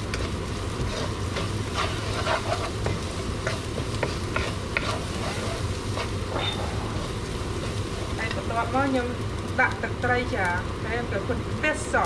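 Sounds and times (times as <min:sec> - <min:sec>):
wooden spoon scraping rice in pan: 0:00.0 - 0:08.5
light sizzle: 0:00.0 - 0:12.0
steady low hum: 0:00.0 - 0:12.0.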